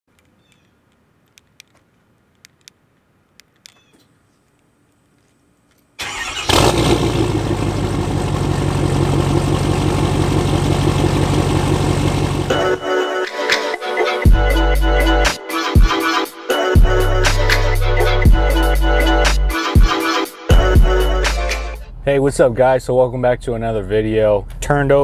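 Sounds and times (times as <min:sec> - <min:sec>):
diesel engine starting and idling: 0:06.0 - 0:12.8.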